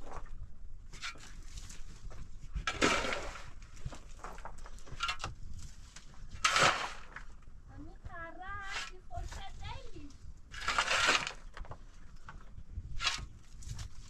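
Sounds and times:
shovel scraping through dirt and rubble: 0.9 - 7.4, 8.6 - 9.6, 10.5 - 14.0.

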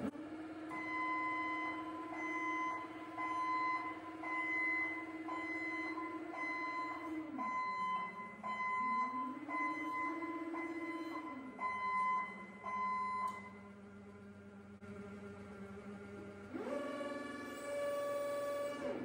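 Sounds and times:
forklift motor and hydraulics: 0.0 - 19.0
forklift warning beeper: 0.7 - 13.7.

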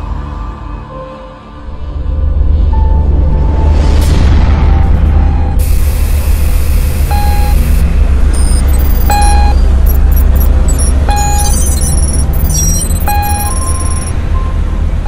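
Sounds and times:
deep bass drone: 0.0 - 15.0
short electronic beeps: 7.1 - 7.7, 8.3 - 14.6
high-pitched digital blips: 7.1 - 14.2.

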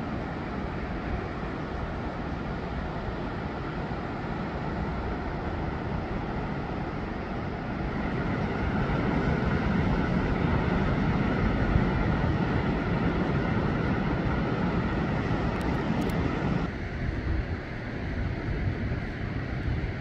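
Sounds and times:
ocean surf roaring: 0.0 - 20.0
wind rumbling on microphone: 0.0 - 20.0.

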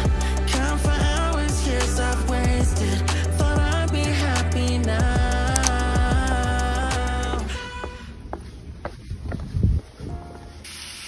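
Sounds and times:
background pop music: 0.0 - 8.0.

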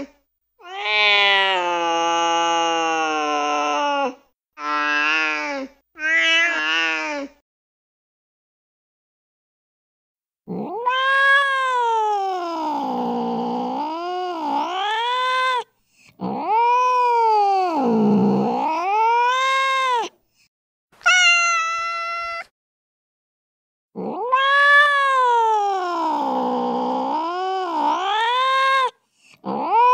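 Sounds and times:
cat meowing: 0.6 - 2.5, 6.0 - 7.2, 10.6 - 12.9, 18.6 - 20.1, 21.0 - 22.5, 24.0 - 29.9
cat yowling: 0.6 - 5.4, 6.0 - 7.2, 10.5 - 20.1, 21.0 - 22.5, 24.0 - 29.9.

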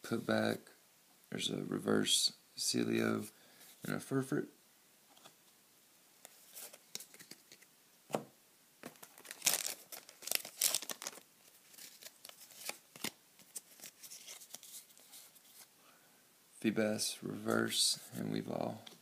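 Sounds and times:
foil wrapper crinkling and tearing: 8.8 - 14.8.

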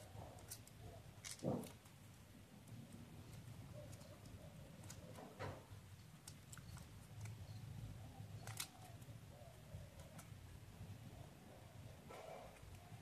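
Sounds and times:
paper crinkling: 3.2 - 7.6, 8.3 - 9.2.

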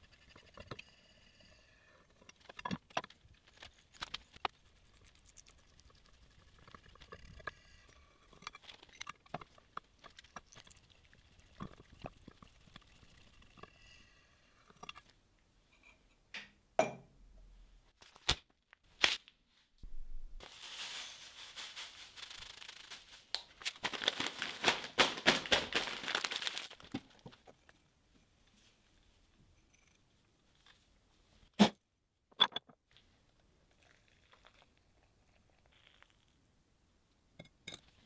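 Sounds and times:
dry leaves rattling in a gourd: 20.4 - 27.0.

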